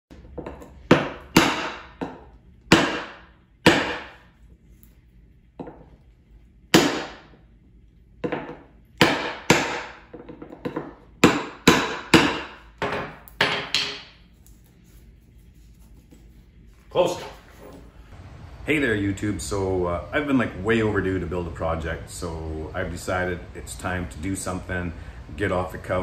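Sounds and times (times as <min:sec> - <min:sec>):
hammer striking metal tool: 0:00.4 - 0:04.2, 0:08.3 - 0:14.1.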